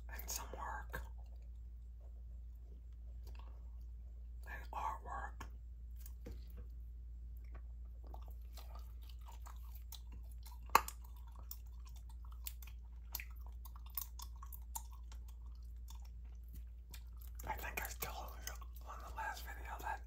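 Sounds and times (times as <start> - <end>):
faint low hum: 0.0 - 20.0
gum chewing smacks: 2.9 - 4.0, 5.4 - 20.0.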